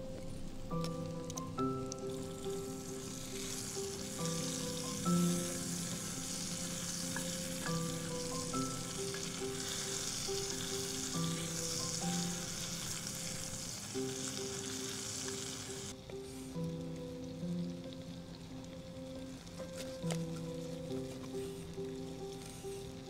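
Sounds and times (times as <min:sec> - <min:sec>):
soft background music: 0:00.0 - 0:23.0
food sizzling in a skillet: 0:00.8 - 0:23.0
wooden spoon stirring: 0:02.5 - 0:11.9.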